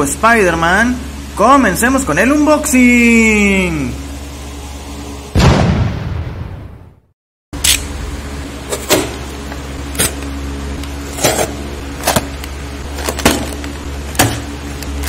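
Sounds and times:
box cutter scraping cardboard: 0:11.1 - 0:12.3.

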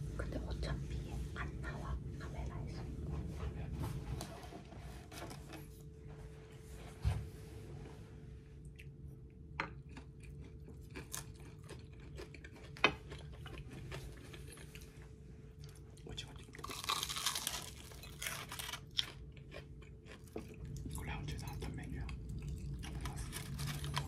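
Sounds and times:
steady low hum: 0:00.0 - 0:24.0
chewing and crunching food: 0:08.6 - 0:24.0.

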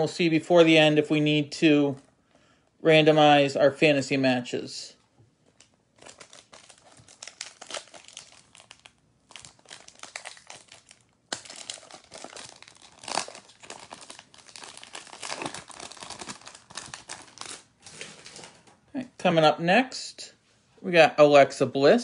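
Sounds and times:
foil wrapper tearing and crinkling: 0:06.0 - 0:18.6.

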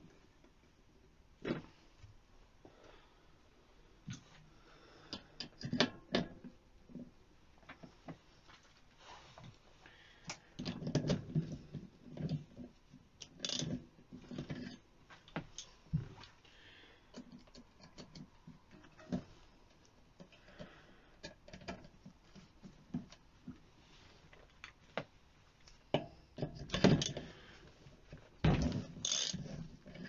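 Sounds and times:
metal tools clicking and knocking: 0:13.2 - 0:13.8, 0:29.0 - 0:30.0.

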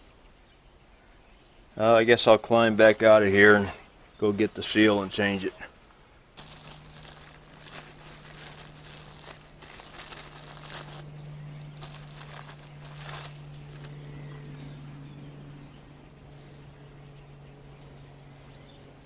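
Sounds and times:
steady low hum: 0:04.6 - 0:19.0
person crawling rustling: 0:06.4 - 0:11.1, 0:11.7 - 0:13.9.

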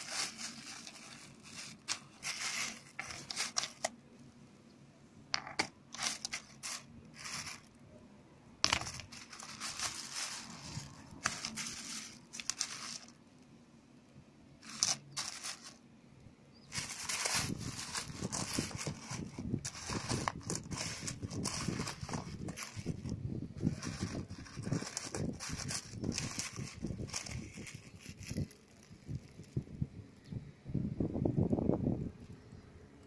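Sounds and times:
plastic bags crinkling: 0:00.0 - 0:04.0, 0:05.4 - 0:07.8, 0:08.6 - 0:13.2, 0:14.6 - 0:15.8, 0:16.6 - 0:29.6.

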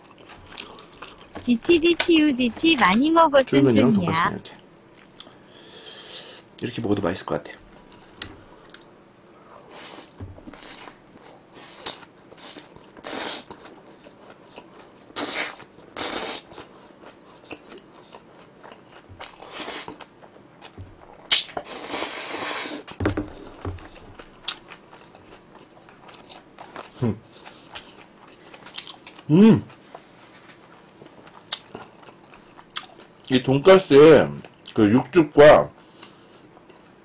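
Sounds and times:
chewing: 0:00.0 - 0:02.1, 0:04.9 - 0:05.5, 0:07.7 - 0:21.8, 0:23.3 - 0:33.2, 0:35.8 - 0:37.0.

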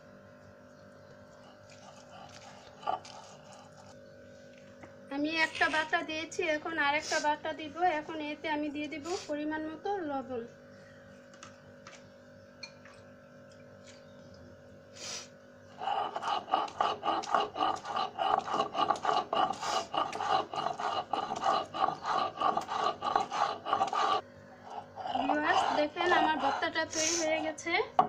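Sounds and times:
stone grinding on stone slab: 0:15.8 - 0:28.0.

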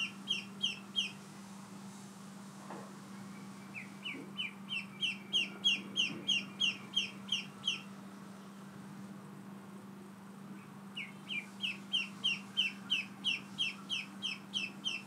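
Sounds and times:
ducklings peeping: 0:00.0 - 0:01.2, 0:03.4 - 0:08.0, 0:10.9 - 0:15.0.

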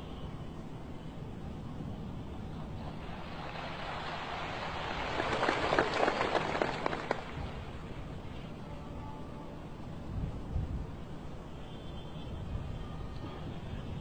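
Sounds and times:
audience applause in a large hall: 0:05.1 - 0:07.4.

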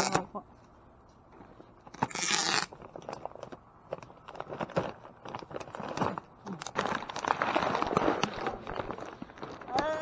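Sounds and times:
plastic and paper bags rustling: 0:02.7 - 0:10.0.

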